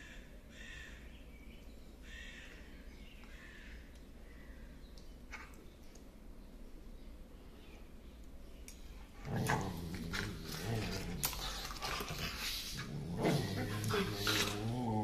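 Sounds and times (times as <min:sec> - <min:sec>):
dogs play growling: 0:09.0 - 0:15.0.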